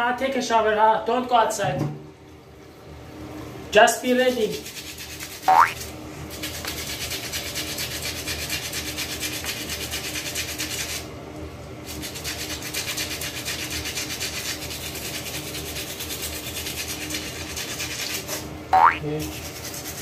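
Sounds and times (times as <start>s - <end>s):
toothbrush scrubbing teeth: 4.0s - 11.1s, 11.8s - 18.5s, 19.2s - 20.0s.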